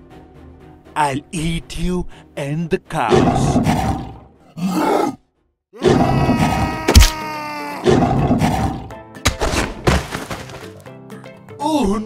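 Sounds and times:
cartoon animal groans and grunts: 0:03.1 - 0:05.2, 0:05.8 - 0:08.9.

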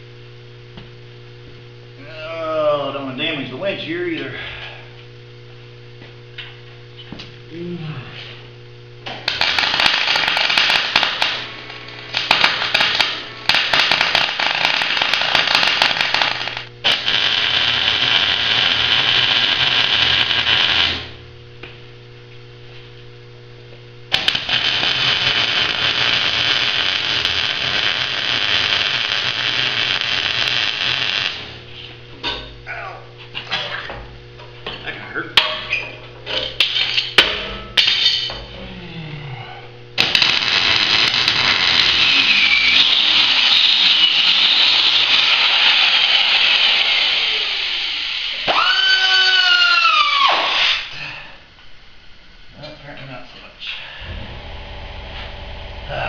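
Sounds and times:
steady electrical hum: 0:00.0 - 0:56.0
welding arc hissing and crackling: 0:09.0 - 0:21.8, 0:24.0 - 0:32.4, 0:36.5 - 0:37.1, 0:40.0 - 0:50.9.

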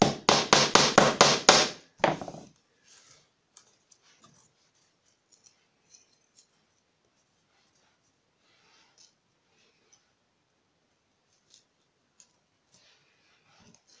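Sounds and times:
hammer tapping a nail: 0:00.0 - 0:02.4
wooden strip knocking: 0:00.0 - 0:02.5.

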